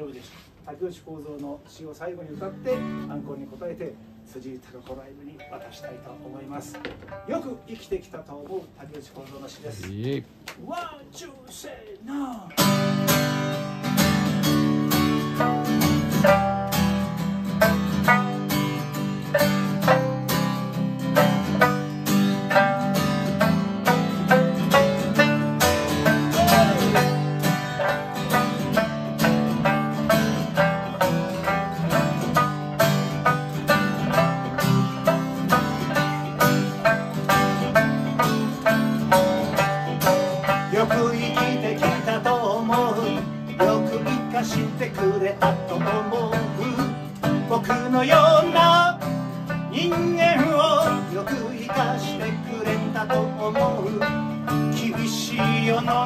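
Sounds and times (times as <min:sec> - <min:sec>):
lute plucking: 0:00.0 - 0:10.4, 0:12.5 - 0:56.0
acoustic guitars strumming: 0:02.0 - 0:08.8, 0:12.4 - 0:56.0
man singing: 0:26.0 - 0:27.9, 0:40.4 - 0:56.0.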